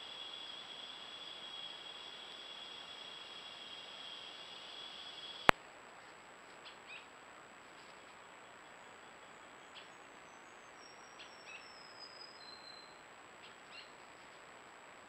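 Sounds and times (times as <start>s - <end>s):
constant high-pitched tone: 0.0s - 5.6s
steady hiss: 0.0s - 15.0s.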